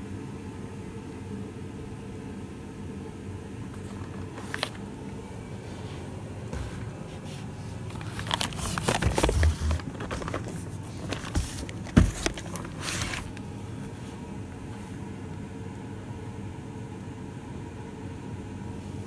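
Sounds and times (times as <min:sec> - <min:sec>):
steady low hum: 0:00.0 - 0:19.0
cardboard box rustling and scraping: 0:06.5 - 0:13.4.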